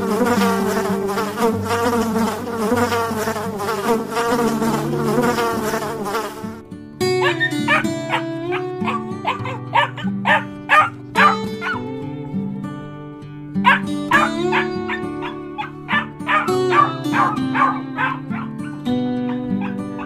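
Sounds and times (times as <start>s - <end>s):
bees buzzing: 0.0s - 9.4s, 13.7s - 20.0s
background music: 0.0s - 20.0s
dog yipping and whining: 7.2s - 11.9s, 13.6s - 20.0s.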